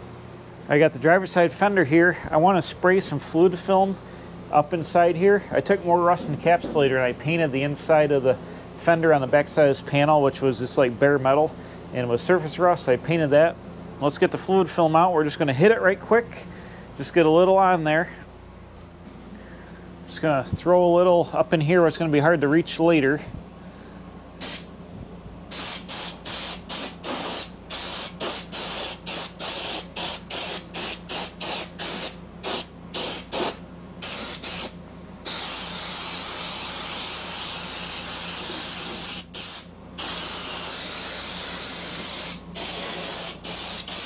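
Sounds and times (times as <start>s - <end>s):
air spray gun hissing: 24.4s - 24.7s, 25.5s - 44.0s.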